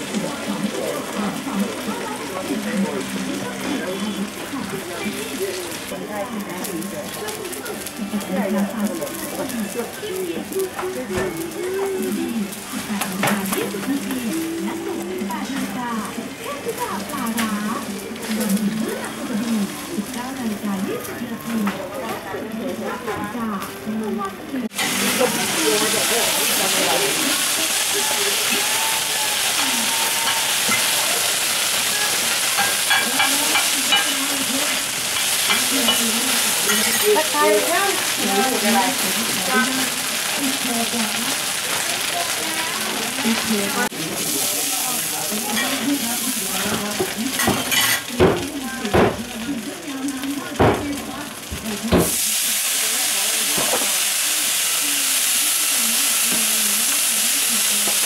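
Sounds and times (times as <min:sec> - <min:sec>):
omelette sizzling in hot oil: 0:00.0 - 0:21.5, 0:24.6 - 0:58.0.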